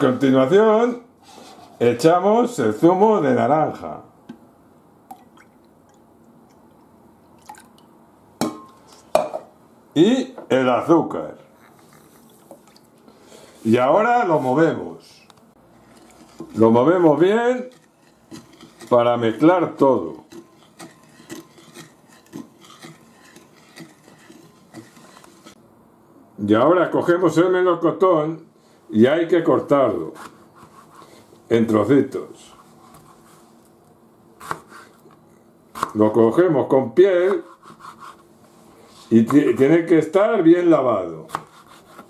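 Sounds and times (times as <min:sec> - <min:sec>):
liquid trickling into liquid: 0:05.1 - 0:07.9, 0:11.8 - 0:13.0
spatula stirring in glass bowl: 0:15.7 - 0:25.6.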